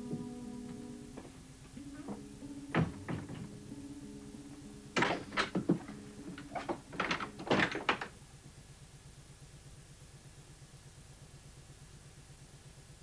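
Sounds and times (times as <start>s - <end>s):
low background music: 0.0s - 8.1s
wooden door knocks and latch clatters: 2.1s - 3.5s, 5.0s - 8.1s.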